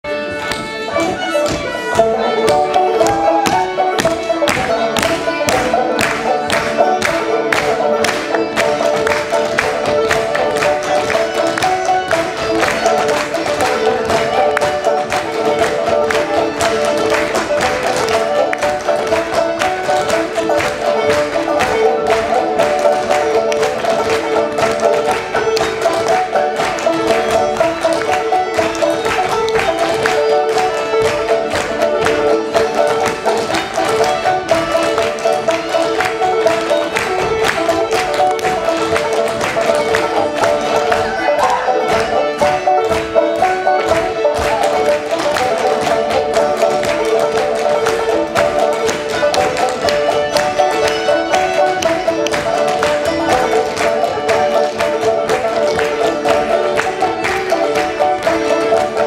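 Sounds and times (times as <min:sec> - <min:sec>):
folk band playing: 0:00.0 - 0:59.0.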